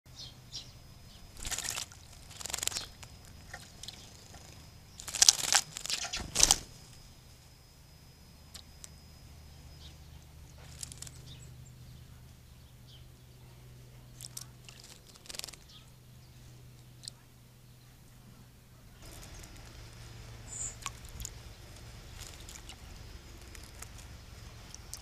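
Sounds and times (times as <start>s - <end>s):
bird splashing in water: 1.4s - 4.0s, 5.0s - 6.6s, 19.0s - 25.0s.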